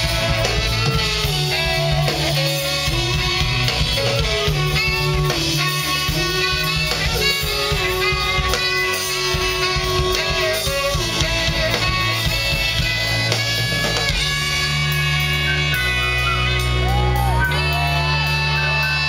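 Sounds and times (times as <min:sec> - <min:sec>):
bass guitar: 0:00.0 - 0:19.0
drum kit: 0:00.0 - 0:19.0
keyboards: 0:00.0 - 0:19.0.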